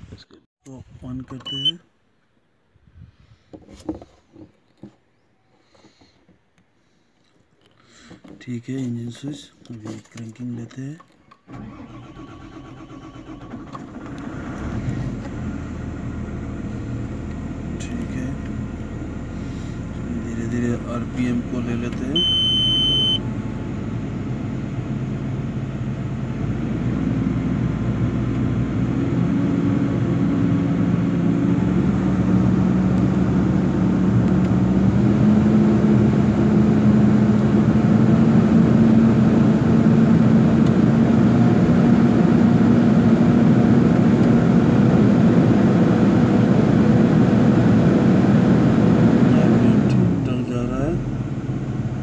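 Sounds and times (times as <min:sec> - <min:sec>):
excavator diesel engine revving: 0:11.5 - 0:52.0.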